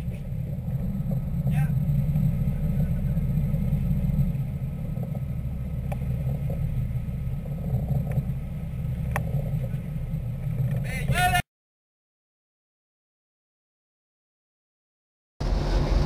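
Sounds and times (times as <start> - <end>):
boat engines rumbling: 0.0 - 11.4, 15.4 - 16.0.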